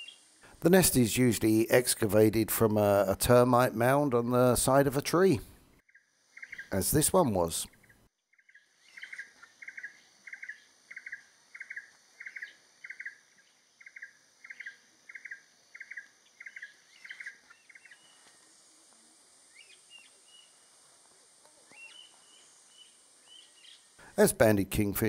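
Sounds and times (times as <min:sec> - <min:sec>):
faint bird chirps: 0:00.0 - 0:00.5, 0:05.8 - 0:24.1
forest insects droning: 0:00.0 - 0:25.0.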